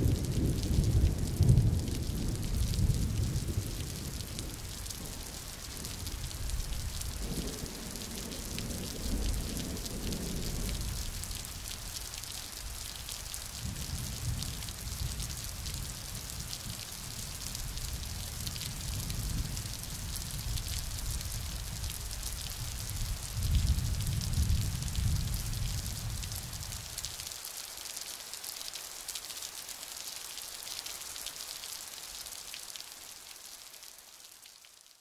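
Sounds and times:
steady rain: 0:00.0 - 0:35.0
raindrops ticking: 0:00.1 - 0:27.2.

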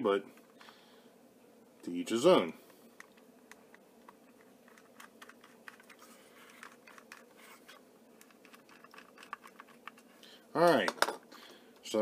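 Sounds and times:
small screwdriver clicks and scratching: 0:03.0 - 0:10.2.

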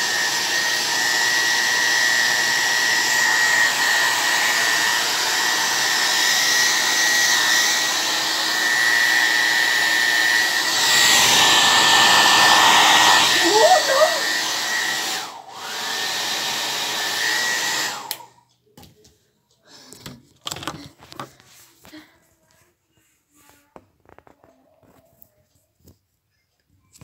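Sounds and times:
blow dryer running: 0:00.0 - 0:18.4.

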